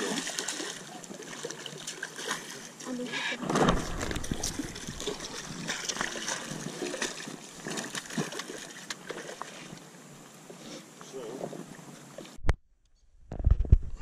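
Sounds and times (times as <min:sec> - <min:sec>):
water sloshing and trickling: 0:00.0 - 0:12.4
fish thrashing in water: 0:03.4 - 0:09.6.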